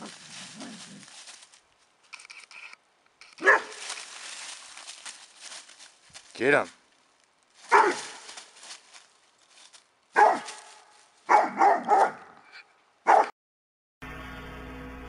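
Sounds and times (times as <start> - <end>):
dog barking: 3.4 - 3.8, 7.7 - 8.3, 10.2 - 12.4, 13.0 - 13.3.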